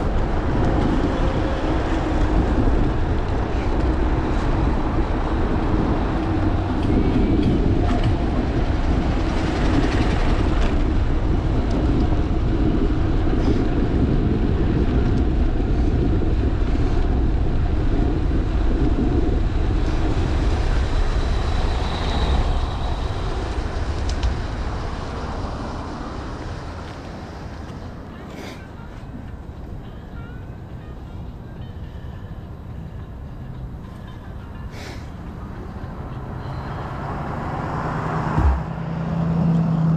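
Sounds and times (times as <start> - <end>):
bicycle tyres on asphalt: 0.0 - 29.7
wind rushing over microphone: 0.0 - 29.8.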